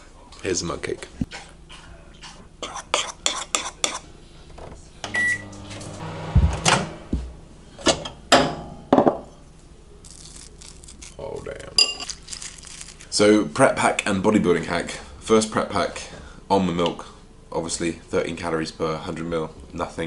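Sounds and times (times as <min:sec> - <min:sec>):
microwave humming: 0:04.5 - 0:10.0
microwave beeping: 0:05.0 - 0:08.5.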